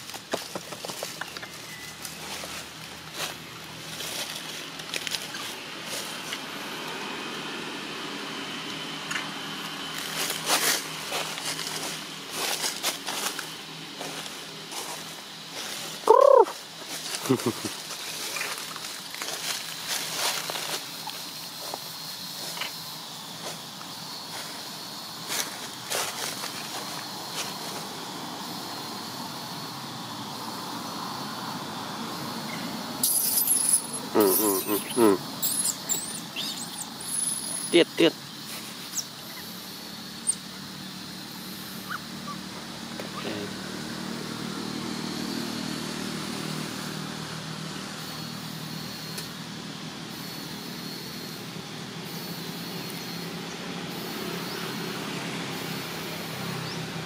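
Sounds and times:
dry leaves crackling and rustling: 0:00.0 - 0:06.3, 0:09.8 - 0:21.8, 0:24.3 - 0:28.0
faint insect-like drone: 0:00.0 - 0:57.0
outdoor background hiss: 0:00.0 - 0:57.0.

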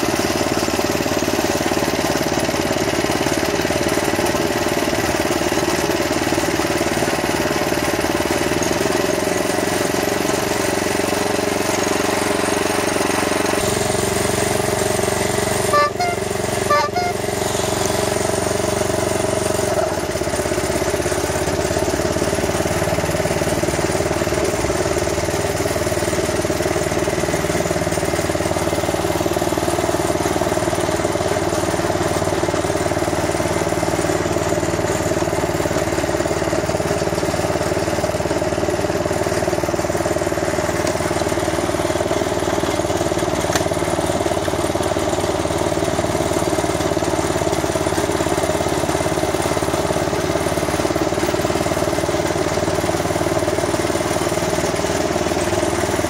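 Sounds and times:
petrol engine running: 0:00.0 - 0:56.0
short sharp sounds: 0:15.7 - 0:18.1.

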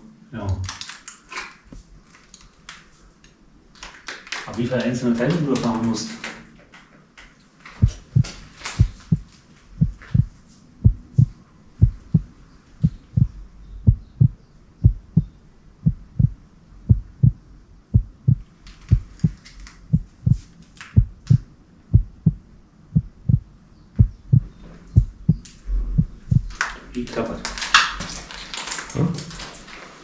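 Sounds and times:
heartbeat thumps: 0:07.8 - 0:26.5.

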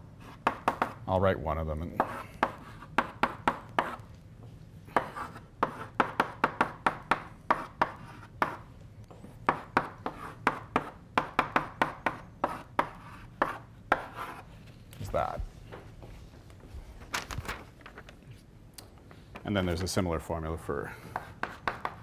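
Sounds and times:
chalk tapping and scratching: 0:02.0 - 0:04.1, 0:04.9 - 0:08.6, 0:09.2 - 0:14.8, 0:21.0 - 0:22.0.

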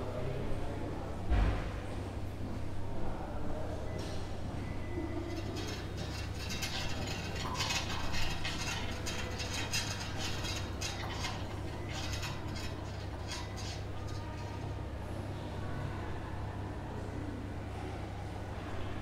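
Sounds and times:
light metallic clicking and rattling: 0:05.2 - 0:14.9.

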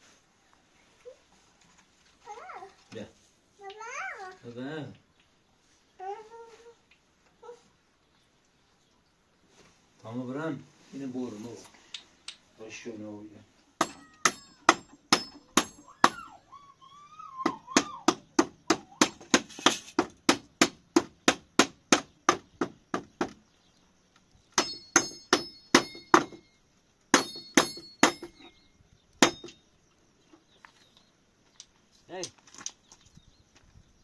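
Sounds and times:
hammer driving nails: 0:17.8 - 0:23.4, 0:27.1 - 0:28.5.

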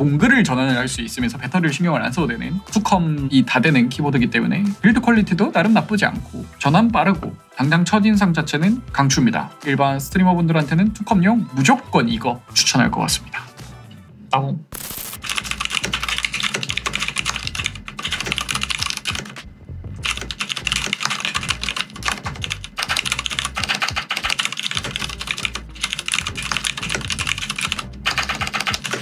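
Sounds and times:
typing on mechanical keyboard: 0:15.2 - 0:19.4, 0:20.0 - 0:29.0.

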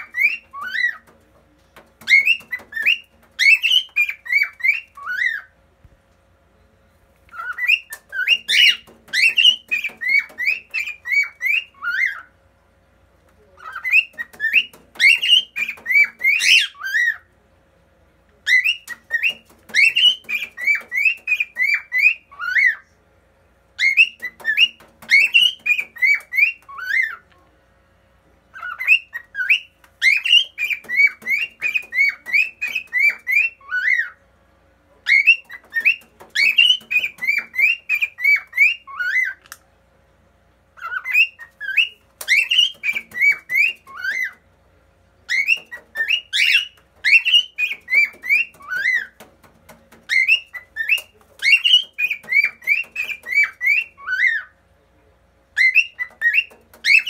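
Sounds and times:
cockatiel whistling song: 0:00.0 - 0:01.0, 0:02.0 - 0:05.5, 0:07.3 - 0:12.3, 0:13.6 - 0:17.2, 0:18.5 - 0:22.8, 0:23.8 - 0:27.2, 0:28.5 - 0:34.2, 0:35.1 - 0:39.4, 0:40.8 - 0:44.4, 0:45.3 - 0:49.3, 0:50.1 - 0:54.5, 0:55.6 - 0:57.0.

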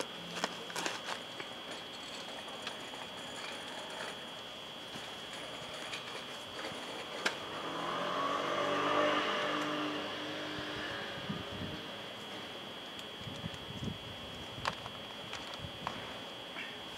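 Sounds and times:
vehicle passing by: 0:07.4 - 0:12.0.

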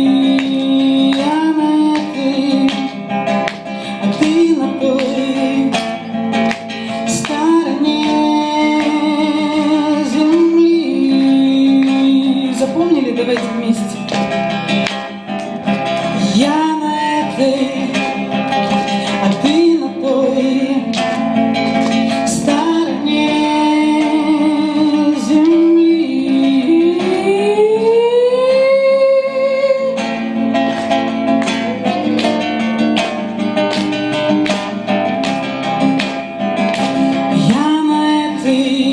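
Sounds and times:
woman singing: 0:00.0 - 0:14.2, 0:16.1 - 0:18.4, 0:19.1 - 0:30.2, 0:37.3 - 0:38.9
acoustic guitar strumming: 0:00.0 - 0:38.9.

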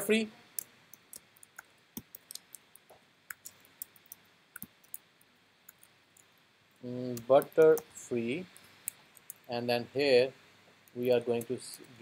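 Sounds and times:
keyboard typing: 0:00.5 - 0:05.1.

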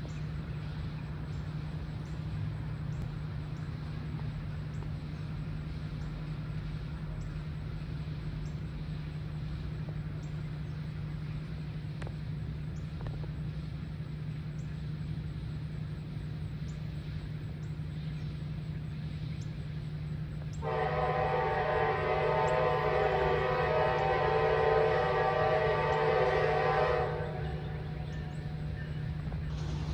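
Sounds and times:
steady low hum: 0:00.0 - 0:29.9
faint high ticks: 0:03.0 - 0:05.0
locomotive horn chord: 0:20.6 - 0:29.1.

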